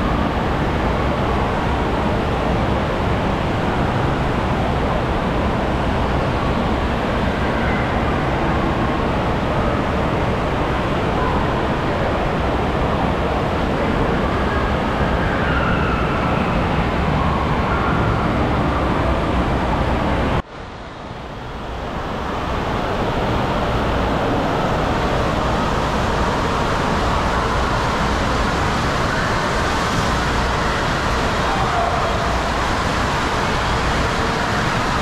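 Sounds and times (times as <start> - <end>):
rushing water: 21.4 - 35.0.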